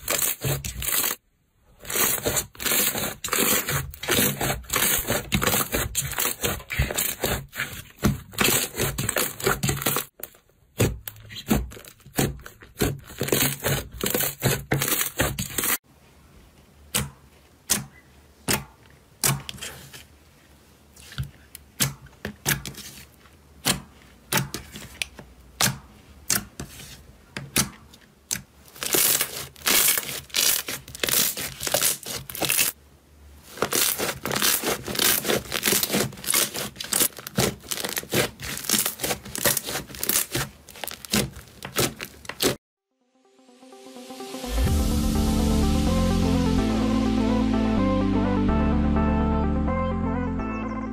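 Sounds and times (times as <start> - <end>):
slime crackling: 28.7 - 32.8, 33.5 - 42.6.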